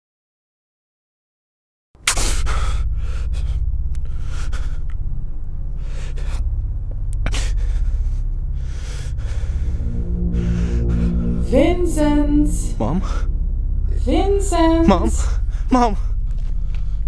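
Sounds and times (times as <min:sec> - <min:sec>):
deep rumbling drone: 0:02.0 - 0:17.0
man breathing heavily and gasping: 0:02.1 - 0:11.4.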